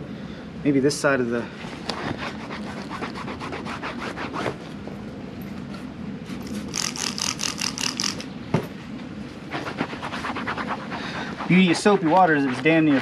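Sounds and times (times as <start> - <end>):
cloth scrubbing wet leather: 1.8 - 4.6, 9.5 - 13.0.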